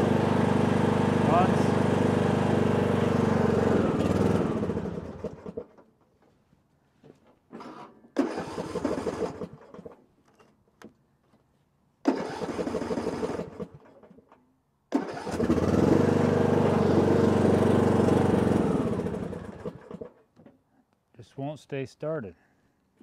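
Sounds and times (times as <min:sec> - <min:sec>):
mower engine running: 0:00.0 - 0:05.7, 0:08.2 - 0:09.9, 0:12.1 - 0:13.9, 0:15.0 - 0:20.2
starter motor cranking: 0:03.2 - 0:05.8, 0:08.2 - 0:10.0, 0:12.1 - 0:14.2, 0:14.9 - 0:20.2.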